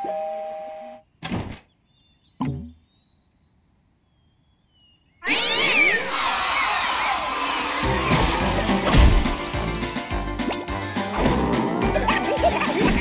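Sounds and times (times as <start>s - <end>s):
cartoon squeaks and sweeping sounds: 12.0s - 13.0s.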